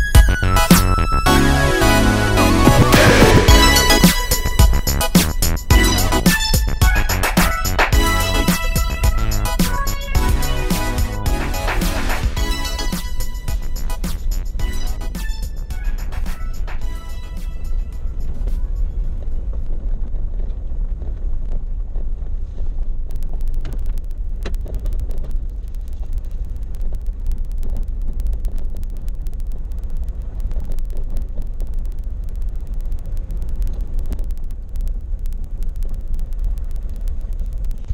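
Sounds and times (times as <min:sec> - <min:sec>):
wind noise on microphone: 0:00.0 - 0:37.9
vehicle rumbling on gravel: 0:02.4 - 0:04.0
small clicks and rattles: 0:18.1 - 0:37.9.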